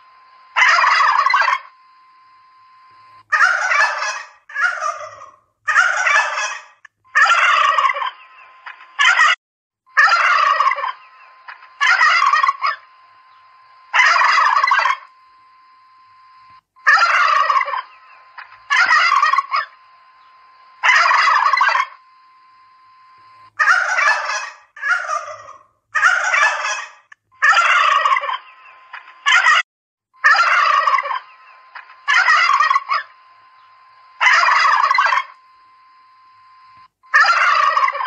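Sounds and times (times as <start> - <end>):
turkeys gobbling: 0.6 - 1.7, 3.3 - 9.4, 10.0 - 15.1, 16.8 - 20.2, 20.8 - 22.0, 23.6 - 29.6, 30.2 - 33.1, 34.2 - 35.4, 37.1 - 38.0.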